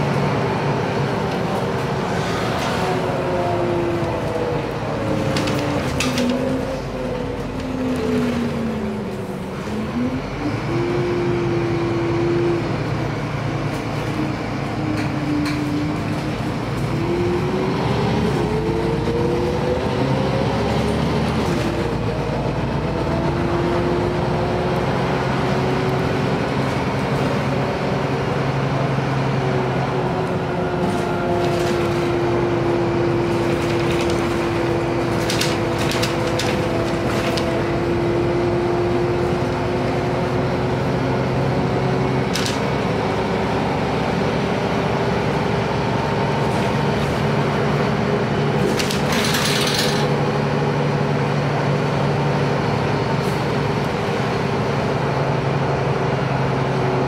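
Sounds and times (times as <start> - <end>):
bus engine drone: 0.0 - 57.0
interior clicks and rattles: 33.4 - 37.6, 48.5 - 50.2.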